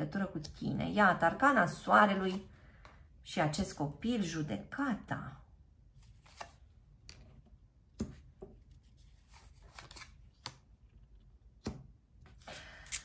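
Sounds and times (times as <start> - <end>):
cards tapping and sliding: 6.0 - 10.7.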